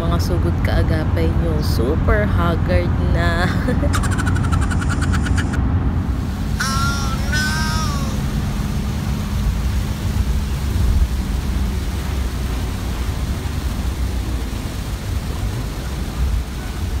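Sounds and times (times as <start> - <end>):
engine and tyres on wet road: 0.0 - 17.0
brief warbling tone: 3.9 - 5.6, 6.6 - 8.2.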